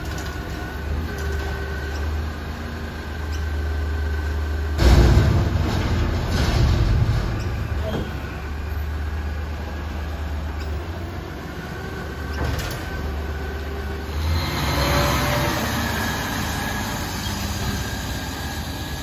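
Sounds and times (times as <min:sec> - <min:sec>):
diesel truck engine running: 0:00.0 - 0:19.0.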